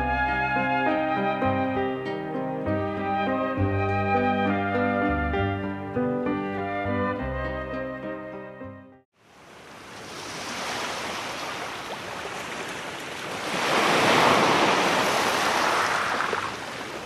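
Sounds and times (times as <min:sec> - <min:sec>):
sea surf washing in: 0:09.2 - 0:17.0
wave breaking: 0:09.8 - 0:17.0.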